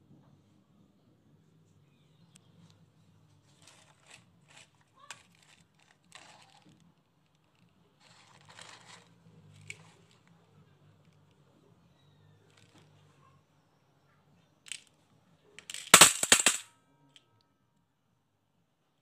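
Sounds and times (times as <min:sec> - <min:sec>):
soft scraping and rustling: 0:03.4 - 0:11.5
sharp clicks of marbles: 0:15.6 - 0:16.6.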